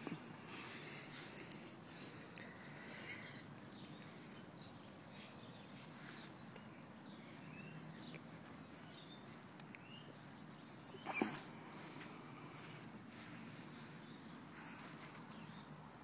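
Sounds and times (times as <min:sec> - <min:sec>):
faint outdoor ambience: 0:00.0 - 0:16.0
distant bird chirps: 0:02.4 - 0:15.9.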